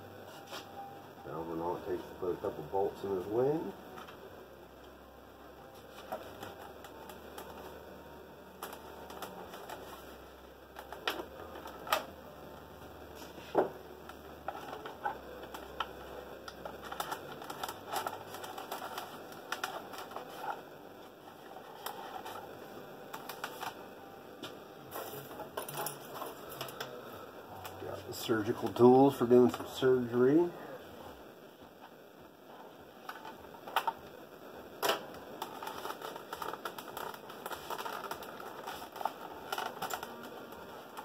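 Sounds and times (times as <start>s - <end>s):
packaging rustling: 5.6s - 7.8s, 8.5s - 12.2s, 13.3s - 23.8s, 34.8s - 41.0s.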